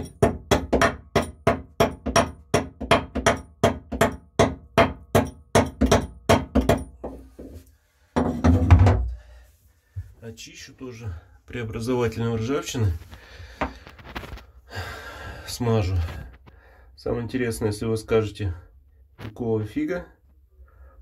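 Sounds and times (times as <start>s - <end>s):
hatchet chopping on steel: 0.0s - 7.0s.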